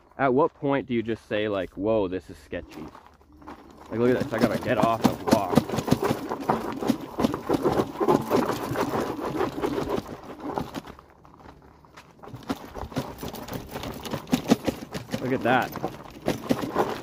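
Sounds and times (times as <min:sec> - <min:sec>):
gravel and stones crunching: 0:00.0 - 0:17.0.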